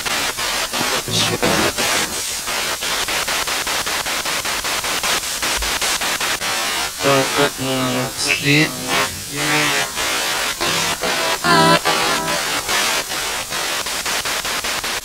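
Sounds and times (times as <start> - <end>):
voice-like radio fragments: 0.8 - 2.2, 7.0 - 12.9.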